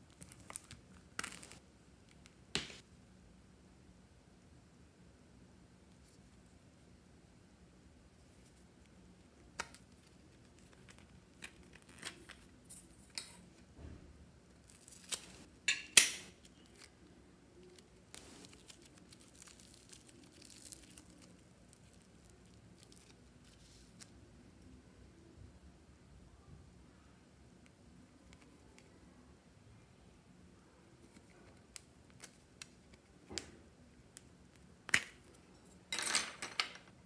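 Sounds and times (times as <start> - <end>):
faint crinkling: 16.4 - 24.8.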